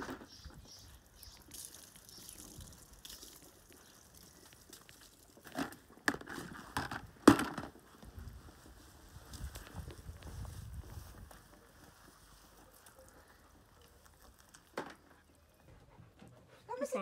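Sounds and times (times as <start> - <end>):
water splashing and dripping: 0.3 - 5.9.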